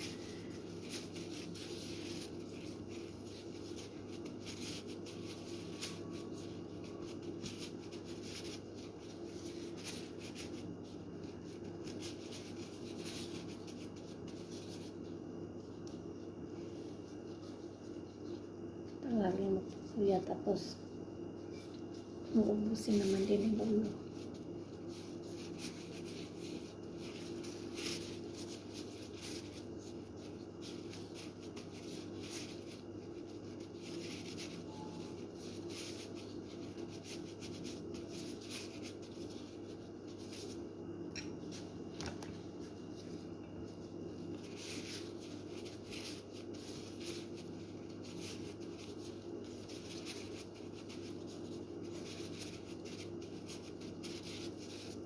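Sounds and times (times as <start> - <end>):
plastic gloves rustling: 0.0 - 55.0
steady low hum: 0.0 - 55.0.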